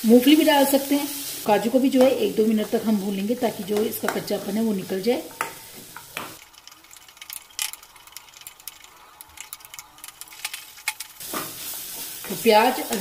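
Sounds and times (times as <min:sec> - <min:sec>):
faint sizzle: 0:00.0 - 0:06.5, 0:11.2 - 0:13.0.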